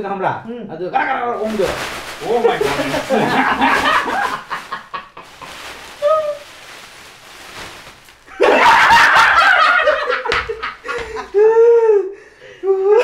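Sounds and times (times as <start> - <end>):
plastic bag rustling: 1.3 - 11.6
men laughing loudly: 2.6 - 5.6, 8.3 - 12.0.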